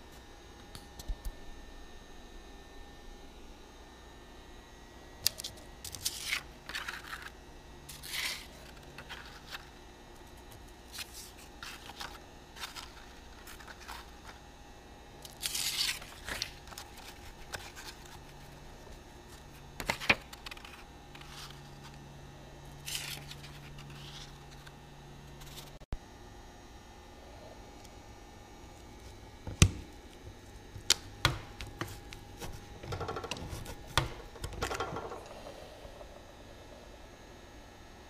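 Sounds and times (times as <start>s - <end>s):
paper rustling and sliding: 5.9s - 9.7s, 10.9s - 14.4s, 19.3s - 22.0s, 22.8s - 24.7s.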